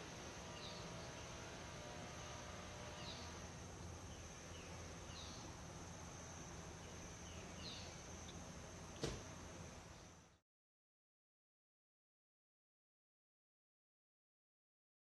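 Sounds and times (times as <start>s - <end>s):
bird chirping: 0.5s - 1.4s, 2.9s - 3.4s, 4.0s - 5.6s, 6.8s - 8.4s.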